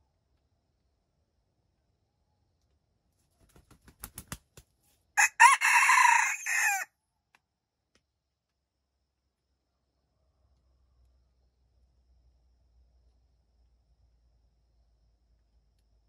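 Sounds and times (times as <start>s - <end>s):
rooster crowing: 5.2s - 6.9s.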